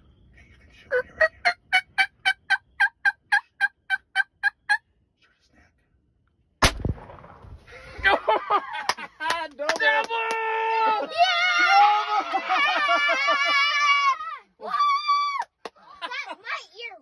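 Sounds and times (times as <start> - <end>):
loud shotgun blast: 6.6 - 7.8
people shouting excitedly: 9.8 - 15.4.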